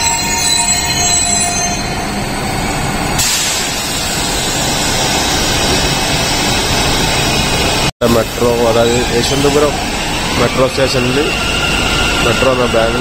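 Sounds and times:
train hiss: 3.2s - 5.9s.

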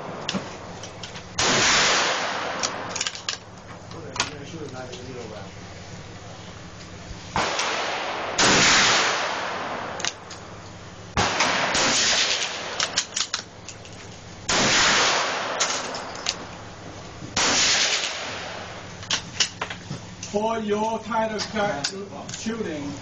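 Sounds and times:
quieter sharp cracks: 0.0s - 4.9s, 6.8s - 20.3s
loud gunshots with echo: 1.4s - 3.1s, 7.3s - 10.2s, 11.1s - 13.2s, 14.5s - 16.1s, 17.4s - 18.9s.

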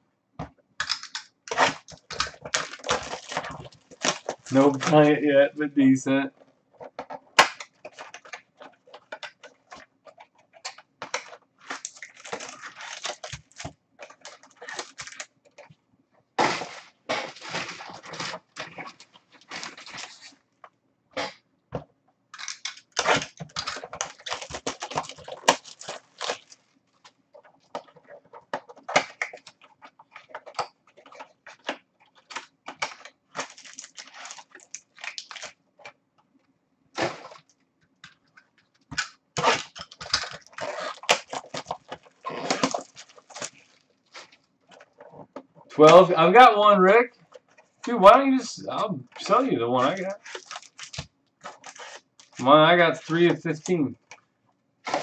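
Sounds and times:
foil wrappers crinkling and tearing: 0.9s - 5.2s, 7.1s - 15.6s, 16.4s - 20.4s, 22.4s - 35.9s, 37.0s - 48.4s, 49.2s - 54.2s.

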